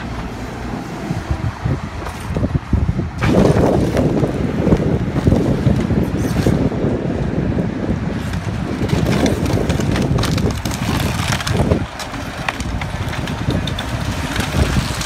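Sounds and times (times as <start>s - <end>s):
excavator engine running: 0.0s - 15.0s
timber splintering and collapsing: 3.2s - 6.7s, 8.2s - 15.0s
sharp wood cracks and snaps: 8.1s - 15.0s.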